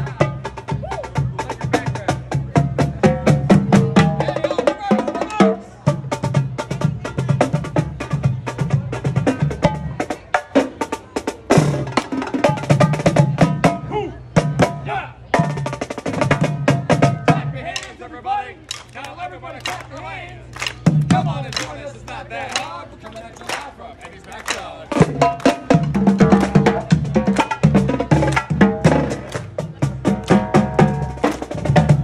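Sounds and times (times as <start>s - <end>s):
marching drum line playing: 0.0s - 13.8s, 14.4s - 32.0s
crowd voices: 0.0s - 32.0s
drumstick clicks: 18.7s - 21.8s.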